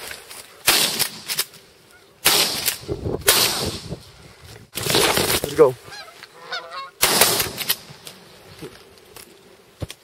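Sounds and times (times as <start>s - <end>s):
shotgun shots: 0.6s - 1.5s, 2.2s - 3.9s, 7.0s - 7.9s.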